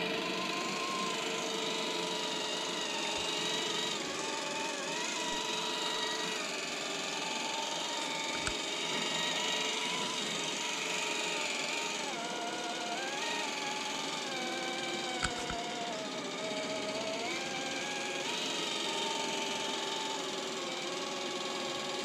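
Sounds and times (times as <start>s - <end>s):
rc car motor whining: 0.0s - 22.0s.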